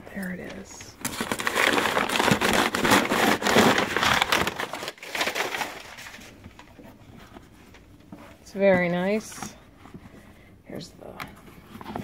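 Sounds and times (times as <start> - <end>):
packing paper crinkling: 0.2 - 7.9.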